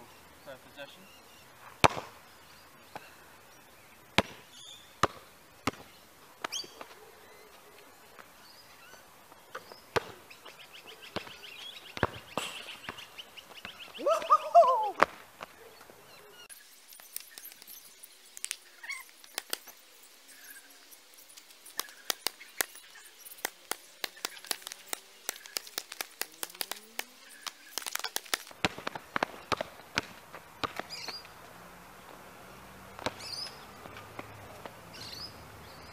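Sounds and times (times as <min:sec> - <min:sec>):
basketball bouncing on asphalt: 0:01.8 - 0:02.2, 0:04.1 - 0:07.0, 0:09.5 - 0:14.0, 0:18.4 - 0:19.8, 0:21.2 - 0:31.4, 0:32.9 - 0:35.3.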